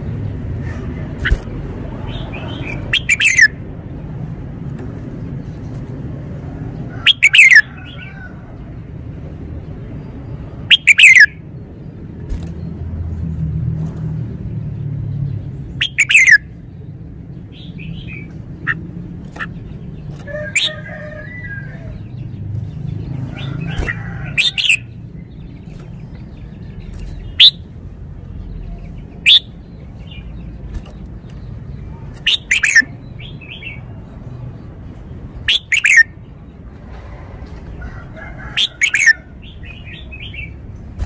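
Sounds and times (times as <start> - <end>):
soft bird chattering: 0.5 - 3.6, 7.0 - 8.1, 10.6 - 11.4, 15.6 - 36.5, 38.5 - 41.0.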